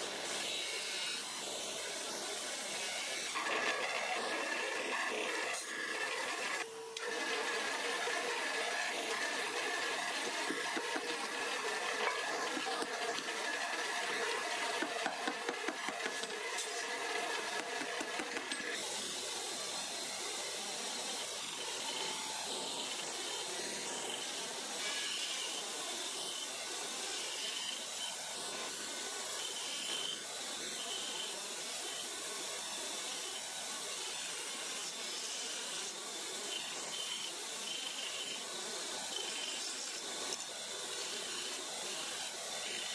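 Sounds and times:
grinding wheel hissing: 1.4s - 24.5s.

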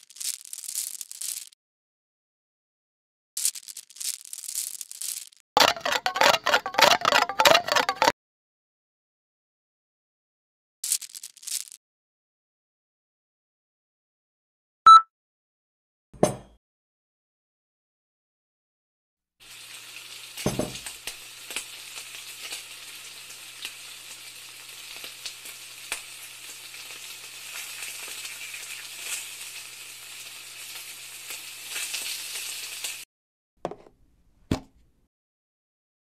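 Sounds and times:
food sizzling in a pan: 19.4s - 33.1s.

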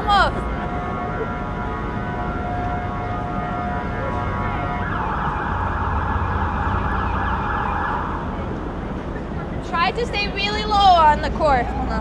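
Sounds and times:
emergency siren: 0.0s - 9.3s
low traffic rumble: 0.0s - 12.0s.

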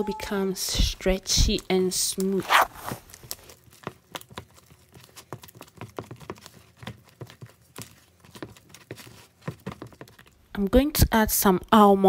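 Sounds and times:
utensil mixing dough in bowl: 3.2s - 10.4s.

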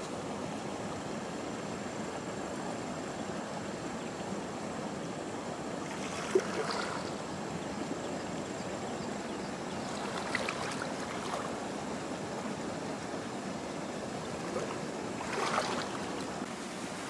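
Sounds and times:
water splashes: 5.7s - 7.4s, 9.6s - 17.0s
person wading through water: 5.9s - 7.2s, 9.7s - 12.9s, 14.0s - 16.5s.

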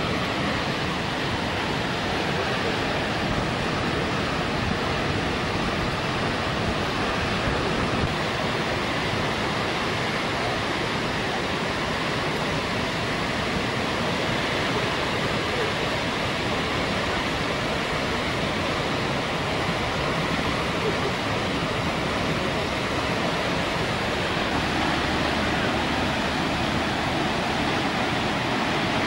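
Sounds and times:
waterfall rushing: 0.0s - 29.0s.

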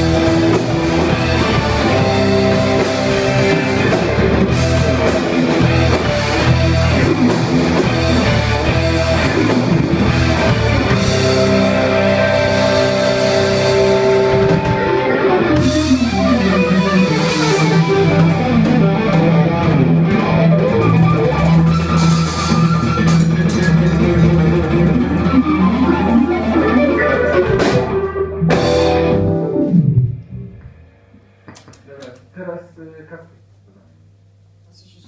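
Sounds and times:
keyboard chord: 0.0s - 21.0s, 23.6s - 30.6s
low bass line: 0.0s - 30.9s
electric guitar: 0.0s - 31.8s.

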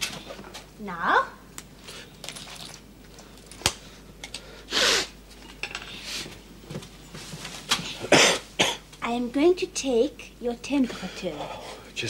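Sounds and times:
rustling and scraping: 5.4s - 8.1s.

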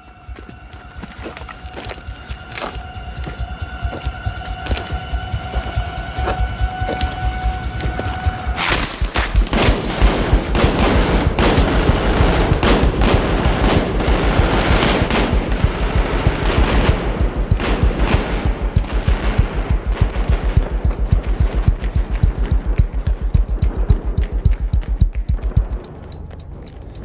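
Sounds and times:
film score with fast pulse: 0.0s - 27.0s
rapid gunfire: 7.2s - 26.2s.

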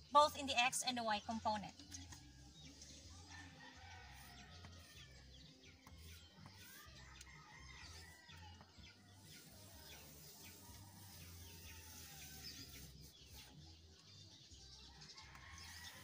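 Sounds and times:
chalk strokes on blackboard: 5.8s - 7.2s, 7.8s - 13.6s.

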